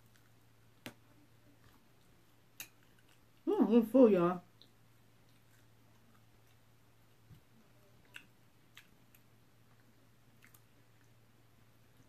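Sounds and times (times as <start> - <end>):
faint low hum: 0.0 - 12.0
mouth clicks of chewing: 8.0 - 11.2.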